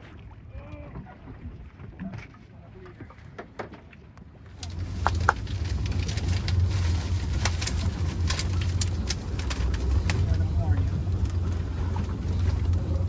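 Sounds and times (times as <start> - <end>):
low rumble: 4.1 - 13.0
fish thrashing and splashing: 4.5 - 13.0.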